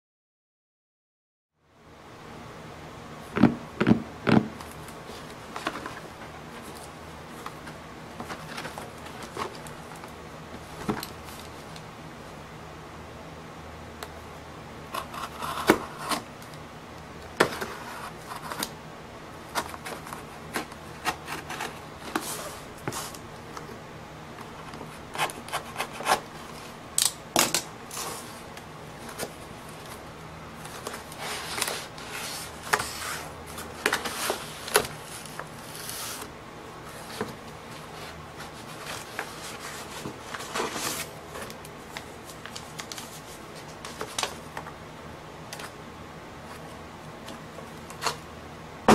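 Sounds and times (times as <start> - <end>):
cardboard scraping and rustling: 4.3 - 11.5, 19.5 - 23.2, 30.6 - 44.5.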